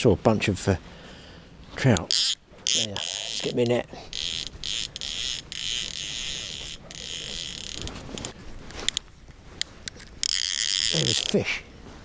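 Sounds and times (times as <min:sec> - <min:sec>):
camera handling rustle: 0:02.0 - 0:11.4.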